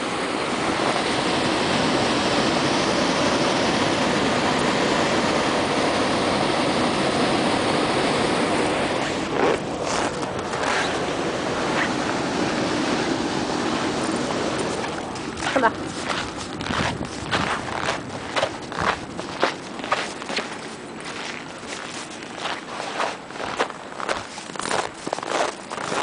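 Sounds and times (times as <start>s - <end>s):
wind on microphone: 0.0s - 26.0s.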